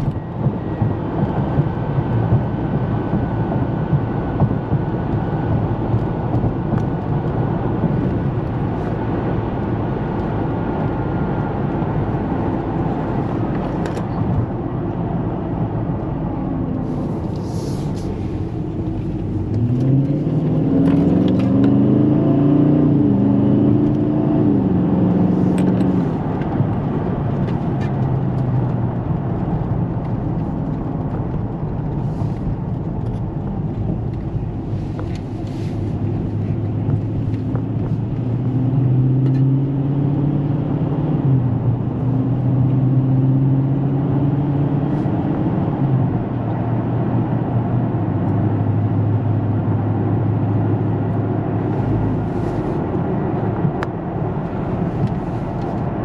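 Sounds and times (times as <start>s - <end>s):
car engine revving: 0.0s - 46.9s
road rumble: 0.0s - 56.0s.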